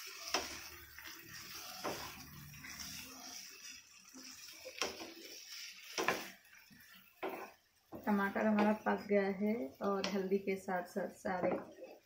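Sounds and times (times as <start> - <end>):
vegetables sizzling in a pan: 0.0 - 12.0
spatula knocking on pan: 7.2 - 8.8.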